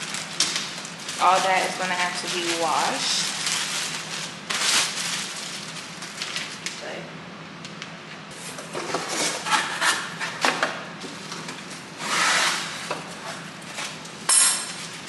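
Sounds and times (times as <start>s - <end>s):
packaging rustling and scraping: 0.0s - 6.7s, 8.3s - 10.4s.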